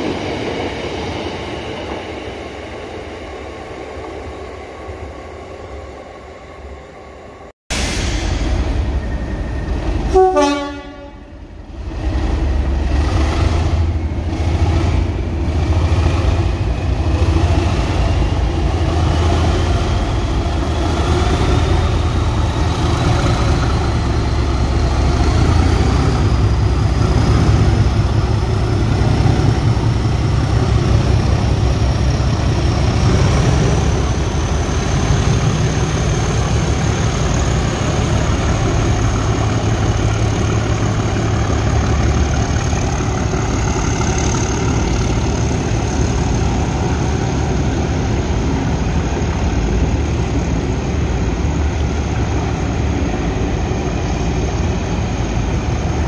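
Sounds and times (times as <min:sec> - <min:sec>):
diesel locomotive engine: 0:00.0 - 0:56.0
train horn blast: 0:10.1 - 0:11.4.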